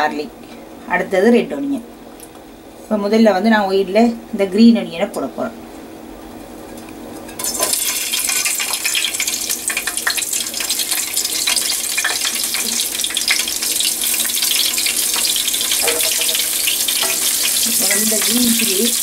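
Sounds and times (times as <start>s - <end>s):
chillies sizzling in hot oil: 7.3s - 19.0s.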